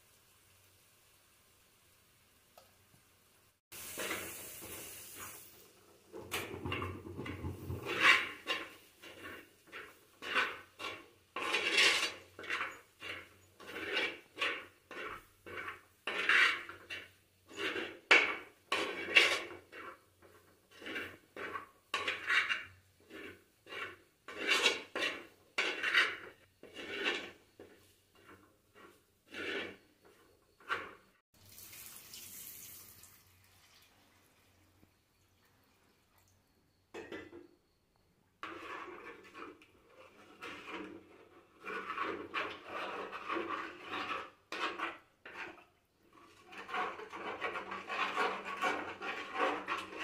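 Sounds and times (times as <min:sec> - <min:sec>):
water pouring into pot: 0:03.8 - 0:08.3, 0:31.4 - 0:36.4
spoon scraping clay pot: 0:06.1 - 0:31.2, 0:38.4 - 0:50.0.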